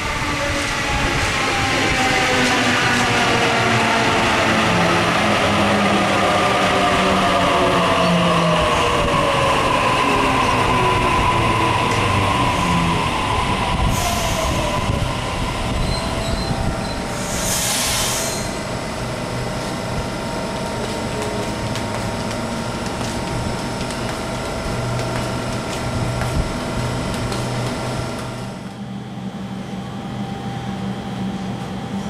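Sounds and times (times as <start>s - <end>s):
train braking whine: 0.0s - 19.8s
standing train hum: 0.0s - 32.0s
sharp air hisses: 13.9s - 14.8s, 17.1s - 18.6s
wheel squeal: 15.8s - 17.0s.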